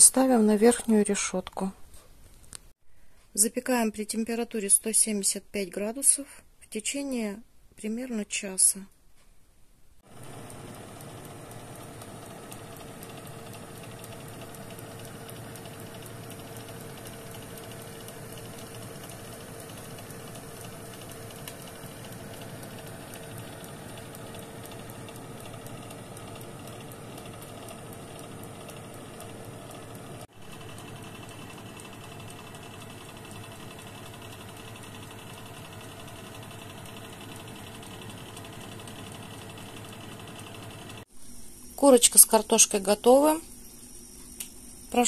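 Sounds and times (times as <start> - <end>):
convection oven fan whirring: 10.0 - 45.0.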